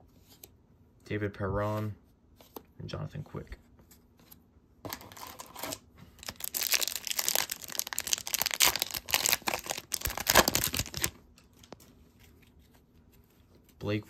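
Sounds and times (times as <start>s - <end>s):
wrapper tearing and crinkling: 4.9s - 11.8s.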